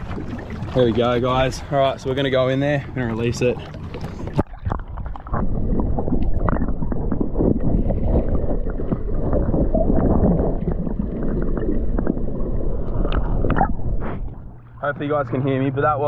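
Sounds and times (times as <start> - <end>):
underwater water sloshing: 0.0 - 16.0
low rumble: 3.7 - 16.0.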